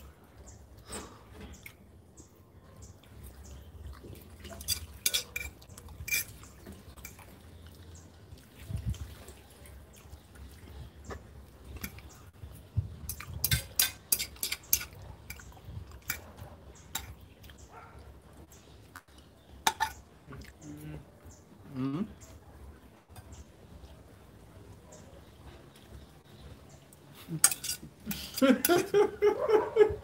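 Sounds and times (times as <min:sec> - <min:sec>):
forks clinking on plates: 0:04.6 - 0:07.2, 0:13.1 - 0:15.4, 0:27.4 - 0:28.9.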